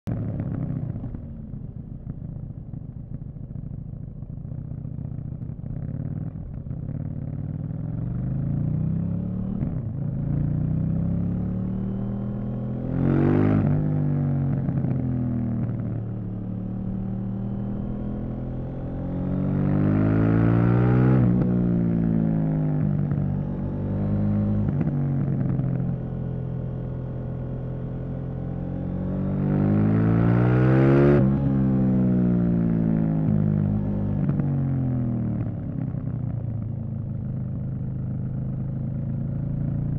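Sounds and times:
motorcycle engine revving: 0:05.2 - 0:36.7.

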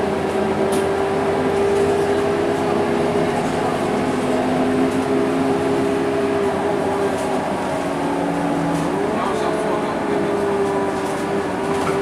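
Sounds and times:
bus diesel engine droning: 0:00.0 - 0:12.0
road and cabin noise: 0:00.0 - 0:12.0.

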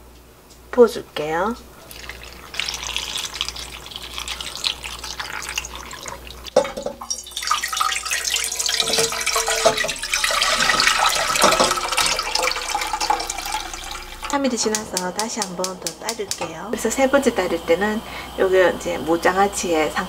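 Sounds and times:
liquid pouring and splashing: 0:01.8 - 0:14.4.

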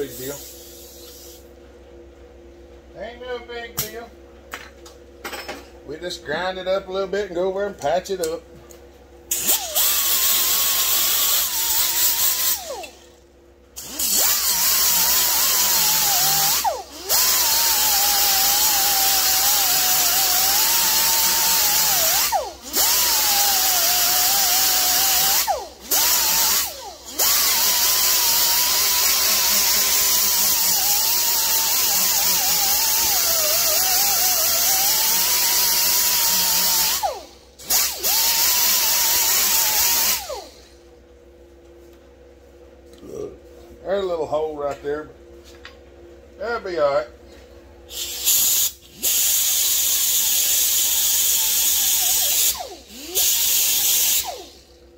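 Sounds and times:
die grinder grinding metal: 0:09.3 - 0:13.1, 0:13.8 - 0:40.5, 0:47.9 - 0:54.6.

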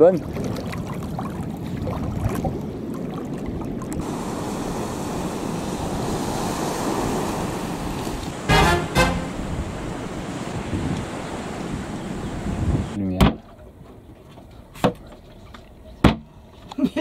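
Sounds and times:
waves washing on sand: 0:04.0 - 0:13.0
short loud pitched sounds: 0:08.5 - 0:09.6.

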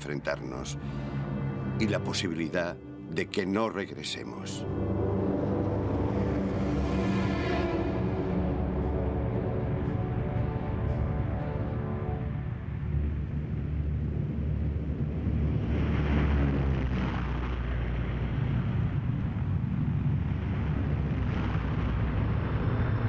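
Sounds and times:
propeller aircraft engines rumbling: 0:00.0 - 0:23.0
rushing noise: 0:11.8 - 0:23.0.

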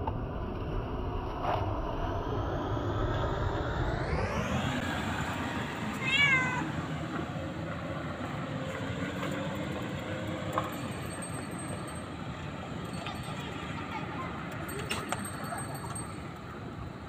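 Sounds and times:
outdoor background noise: 0:00.0 - 0:17.0
cat meowing: 0:05.9 - 0:06.8.

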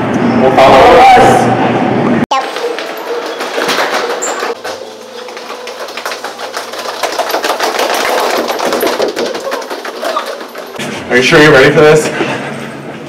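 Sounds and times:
footsteps running on hard floor: 0:02.3 - 0:10.8.

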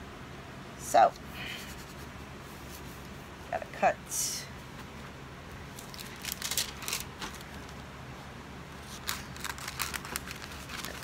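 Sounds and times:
scissors snipping paper: 0:08.9 - 0:11.0.

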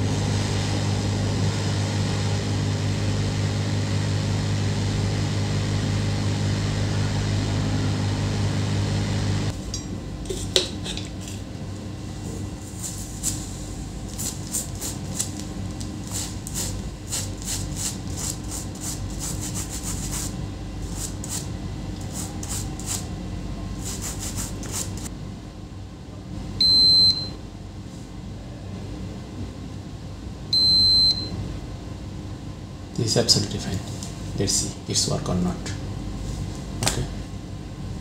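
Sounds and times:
brush scrubbing circuit board: 0:14.1 - 0:15.4, 0:16.1 - 0:23.1, 0:23.8 - 0:25.1
short electronic beeps: 0:26.6 - 0:27.3, 0:30.6 - 0:31.3.

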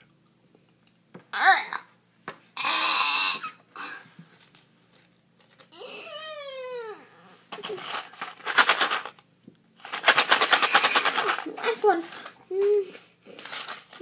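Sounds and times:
boy whining: 0:01.3 - 0:01.9, 0:05.7 - 0:07.8
boy making rough sputtering noises: 0:05.7 - 0:08.0, 0:10.5 - 0:13.0.

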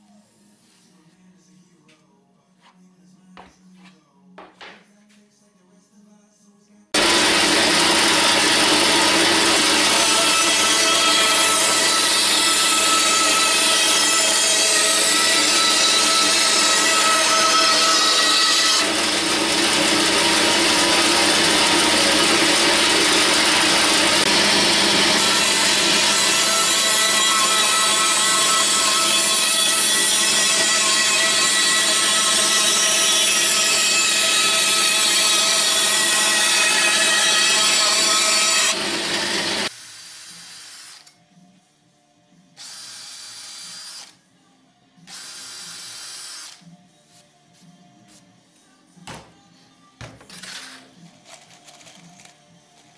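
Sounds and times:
band saw cutting chipboard: 0:07.0 - 0:40.9
cordless drill drilling chipboard: 0:17.6 - 0:29.6.

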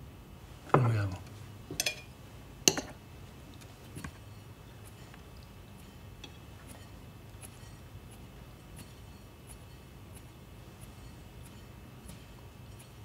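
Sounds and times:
glass clinking against a plate: 0:01.8 - 0:02.1, 0:02.7 - 0:03.0.

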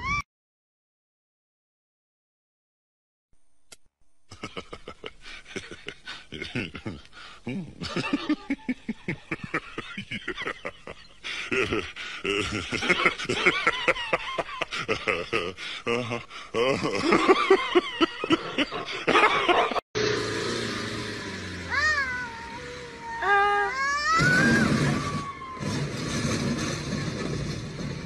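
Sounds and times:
person laughing: 0:04.3 - 0:19.8
person snickering: 0:04.3 - 0:19.8.

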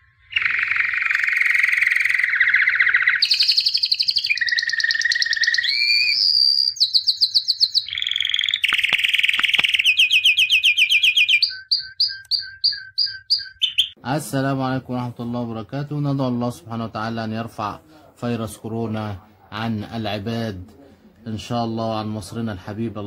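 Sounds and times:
bird chirps: 0:00.0 - 0:14.0
songbird trilling: 0:00.2 - 0:14.0.

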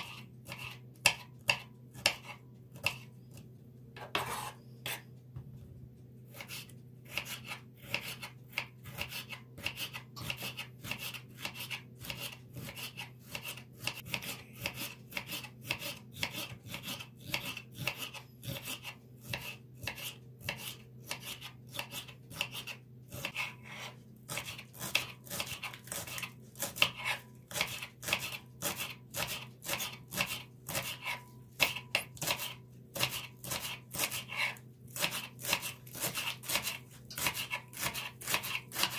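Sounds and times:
knife cutting on cutting board: 0:00.0 - 0:03.4, 0:04.0 - 0:05.1, 0:06.3 - 0:38.9.

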